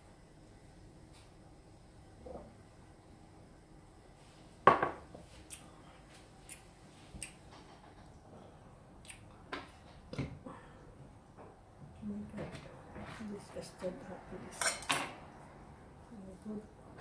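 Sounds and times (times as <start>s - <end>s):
glass knocked on countertop: 4.7s - 5.0s.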